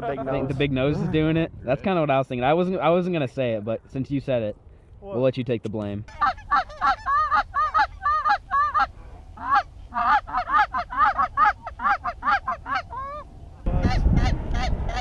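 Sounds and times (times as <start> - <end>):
geese honking: 6.1 - 15.0.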